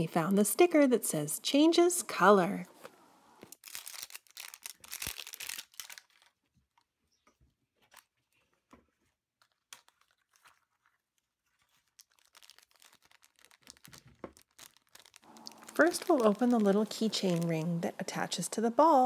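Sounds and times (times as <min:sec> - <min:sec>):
plastic wrapping crinkling and tearing: 0:03.4 - 0:17.9
foil packets crinkling: 0:03.5 - 0:18.3.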